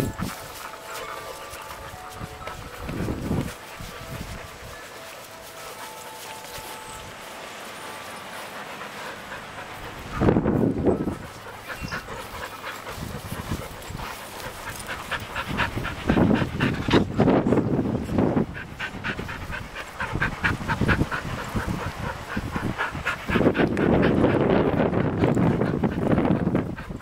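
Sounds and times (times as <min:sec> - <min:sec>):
dogs panting: 0:00.0 - 0:27.0.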